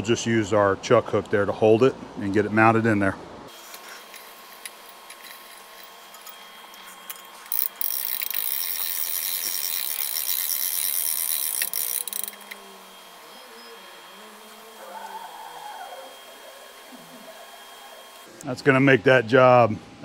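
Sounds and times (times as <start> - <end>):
hand-crank winch clicking: 4.1 - 12.6.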